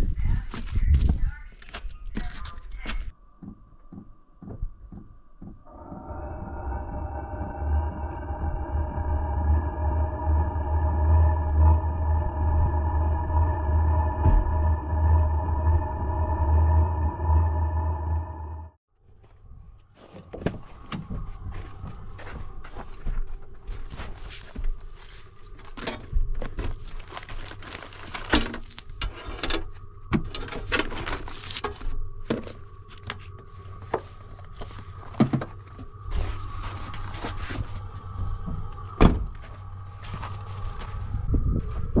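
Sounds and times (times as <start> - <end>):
low steady hum: 3.0 - 18.8.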